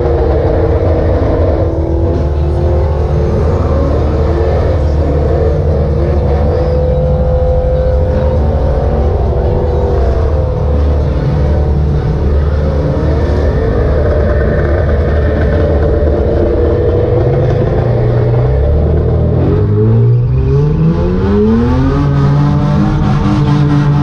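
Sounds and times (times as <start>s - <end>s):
car engine revving: 0.0s - 24.0s.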